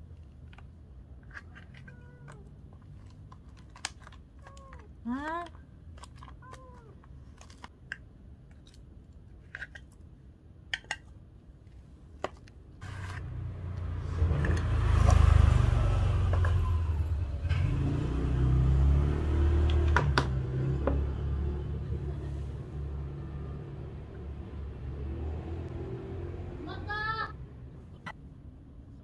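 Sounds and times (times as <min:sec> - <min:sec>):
car engine rumbling: 0:12.8 - 0:28.2.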